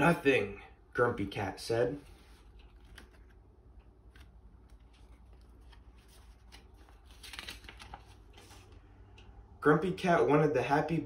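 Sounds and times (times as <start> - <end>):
low room hum: 0.0 - 11.0
paper pages rustling and turning: 2.0 - 9.3.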